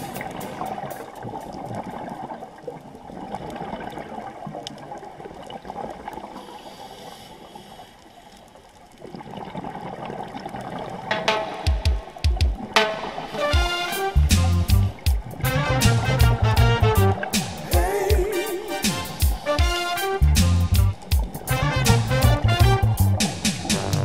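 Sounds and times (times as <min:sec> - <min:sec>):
music: 0:00.0 - 0:01.6, 0:11.1 - 0:24.0
underwater bubbling: 0:00.0 - 0:20.2.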